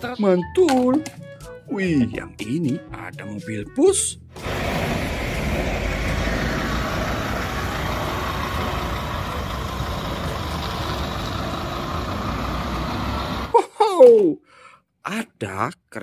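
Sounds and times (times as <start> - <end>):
road traffic noise: 4.3 - 13.6
bus engine running: 4.4 - 13.6.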